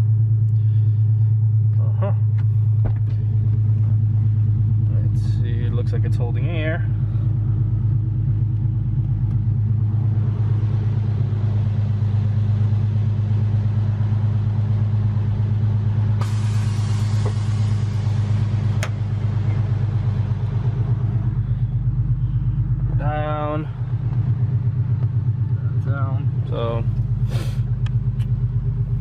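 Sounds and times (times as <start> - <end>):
car engine idling: 0.0 - 29.0
hiss: 16.2 - 18.6, 27.3 - 27.6.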